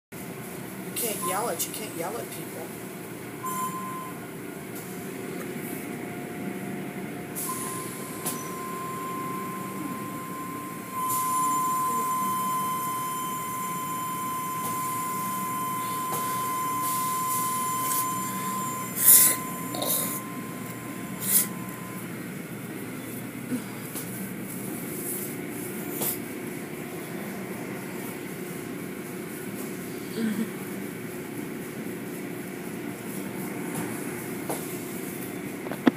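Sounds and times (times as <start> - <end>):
high machine whine: 3.0 - 23.6.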